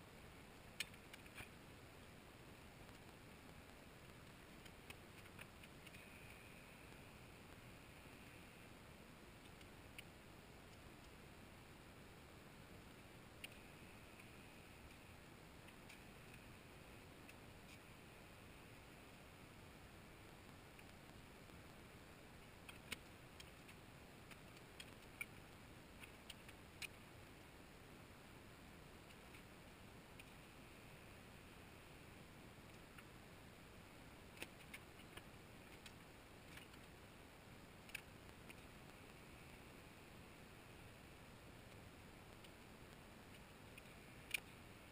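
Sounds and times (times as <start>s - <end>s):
faint steady hiss: 0.0s - 44.9s
soft ticks: 0.6s - 8.7s, 9.4s - 11.2s, 12.8s - 17.9s, 20.3s - 27.6s, 28.9s - 31.1s, 33.9s - 39.8s, 40.7s - 44.9s.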